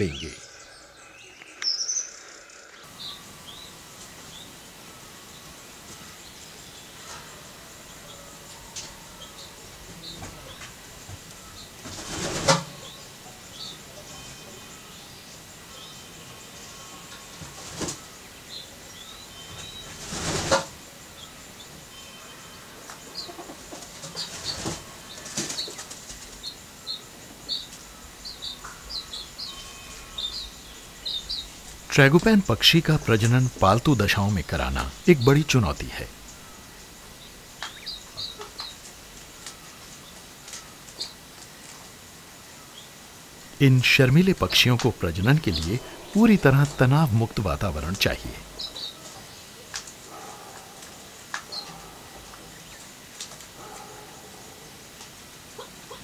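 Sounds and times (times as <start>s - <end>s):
bird chirps: 0.0s - 4.6s, 26.4s - 38.8s, 43.5s - 49.6s
small birds chirping: 0.0s - 54.6s
steady background hiss: 0.0s - 56.0s
rustling bursts: 19.8s - 20.7s.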